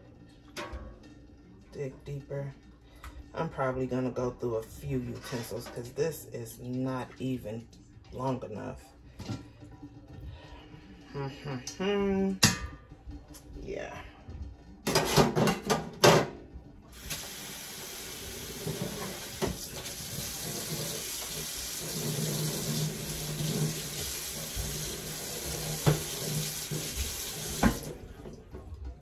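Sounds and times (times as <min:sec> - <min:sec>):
faucet running into metal sink: 0:17.0 - 0:28.4.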